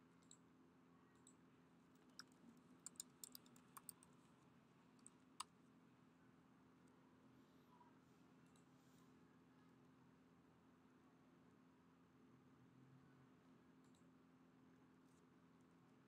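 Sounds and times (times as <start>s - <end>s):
keyboard typing: 2.0s - 4.1s.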